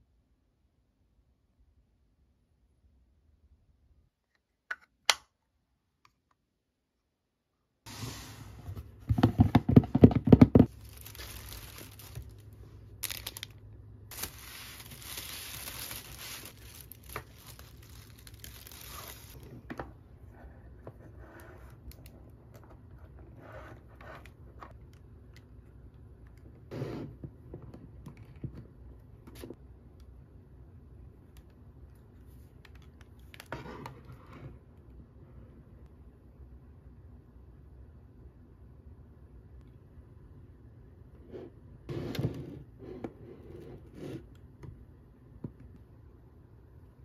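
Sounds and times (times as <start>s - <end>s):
packaging crinkling: 10.6s - 19.4s
packaging tearing: 10.7s - 12.4s, 13.0s - 19.4s.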